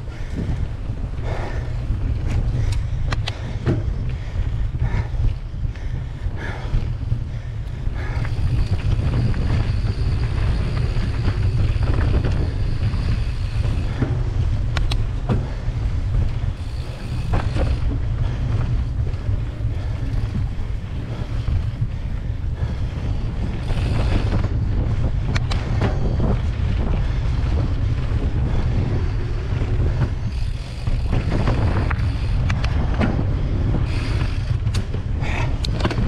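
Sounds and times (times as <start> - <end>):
bike tyres rolling on dirt: 0.0 - 36.0
wind rumble on microphone: 0.0 - 36.0
sharp clicks and rattles: 1.4 - 4.4, 6.6 - 21.9, 23.4 - 36.0.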